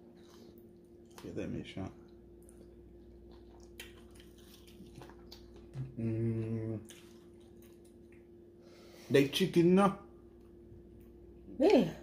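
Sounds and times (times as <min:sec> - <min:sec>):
faint background hum: 0:00.0 - 0:12.0
man humming mmm: 0:05.8 - 0:06.8.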